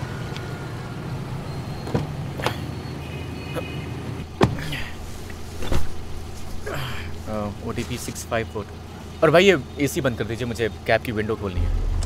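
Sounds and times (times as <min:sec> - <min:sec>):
car door opening and shutting: 0:01.7 - 0:02.7, 0:04.2 - 0:04.8, 0:05.5 - 0:06.1
car engine idling: 0:11.6 - 0:12.0.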